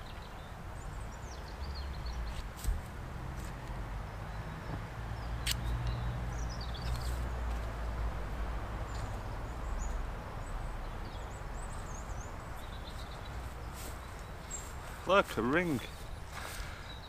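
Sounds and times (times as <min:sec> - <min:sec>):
small birds chirping: 0:00.0 - 0:08.0, 0:08.6 - 0:17.0
sharp click: 0:05.4 - 0:05.7.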